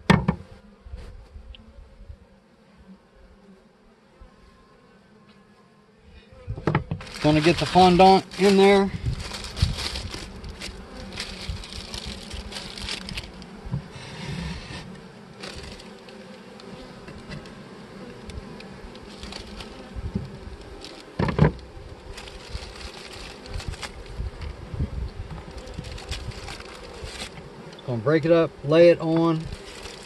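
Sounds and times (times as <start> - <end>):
honey bees buzzing: 0.0 - 30.0
plastic rustling: 6.9 - 13.5, 15.4 - 16.3, 18.9 - 24.1, 25.5 - 27.4, 29.4 - 30.0.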